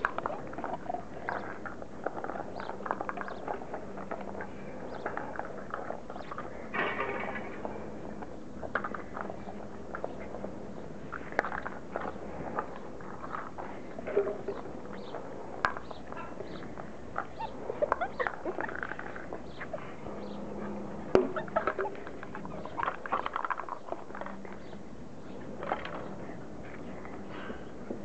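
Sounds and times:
puppies squeaking and yipping: 0:16.5 - 0:20.4.

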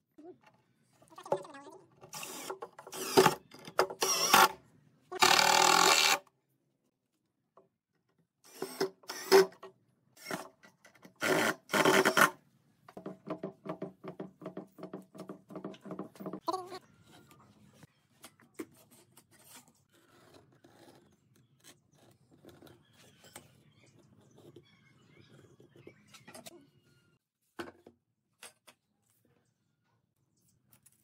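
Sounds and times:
cordless drill driving screws: 0:02.1 - 0:03.4, 0:04.0 - 0:04.5, 0:05.2 - 0:06.2, 0:08.5 - 0:09.6.

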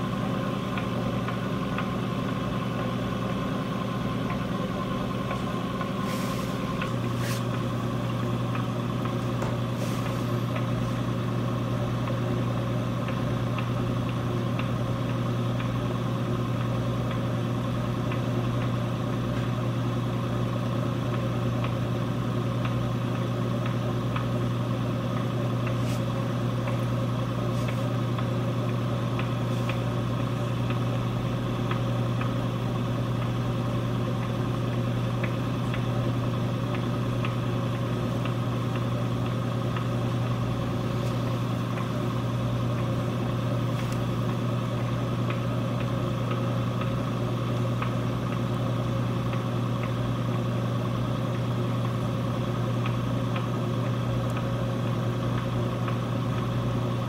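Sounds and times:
low motor hum: 0:00.0 - 0:57.0.

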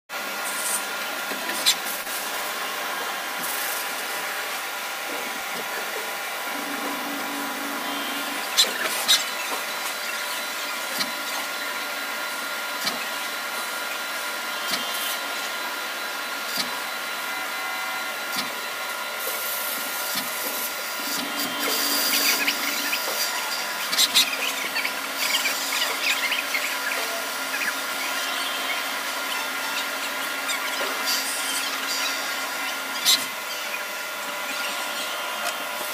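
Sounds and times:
lathe spindle whine: 0:00.3 - 0:35.9
tool cutting metal: 0:19.2 - 0:33.4.

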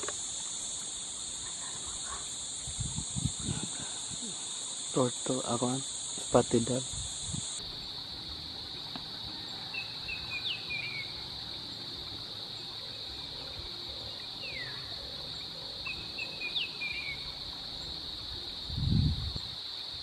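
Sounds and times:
insects droning: 0:00.0 - 0:20.0
bird chirping: 0:09.7 - 0:11.1, 0:15.8 - 0:17.9.

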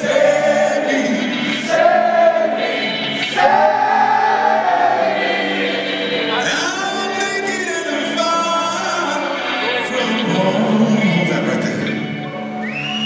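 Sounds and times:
rock band playing live: 0:00.0 - 0:12.9
man singing long notes: 0:06.2 - 0:12.0.

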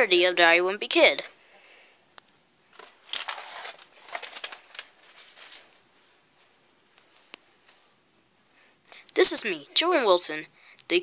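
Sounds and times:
paper pages rustling: 0:02.7 - 0:07.9.

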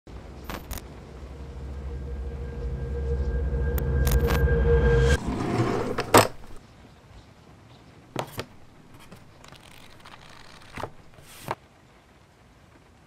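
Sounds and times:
noisy swell: 0:00.1 - 0:06.6
notebook pages turned: 0:08.2 - 0:11.6.

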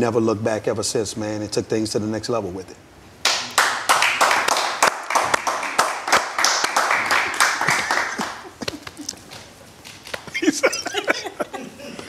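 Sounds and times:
small group clapping: 0:03.2 - 0:10.4.

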